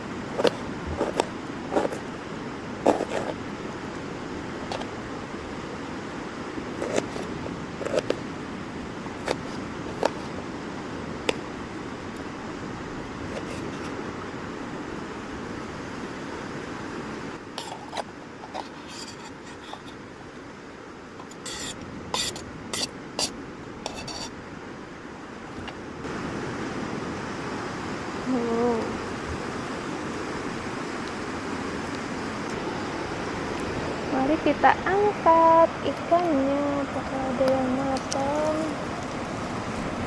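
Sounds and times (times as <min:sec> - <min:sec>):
knife scraping metal lid: 0:17.6 - 0:20.0, 0:21.2 - 0:24.4
surf rushing: 0:21.0 - 0:40.0.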